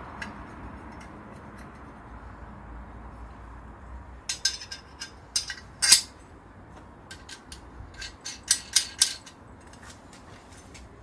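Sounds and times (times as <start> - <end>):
steel brackets clinking and scraping: 4.2 - 6.2, 7.1 - 10.7.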